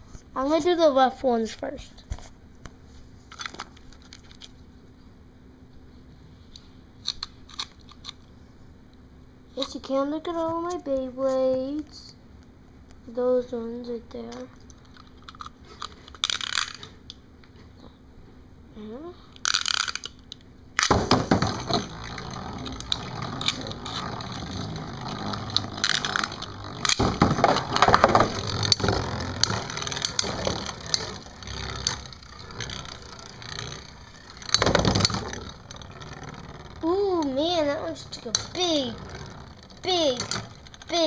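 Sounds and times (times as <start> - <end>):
spinning tops scraping in plastic arena: 14.3 - 17.0, 19.4 - 20.2, 20.8 - 41.0
spinning tops clacking together: 14.7 - 17.0, 19.4 - 41.0.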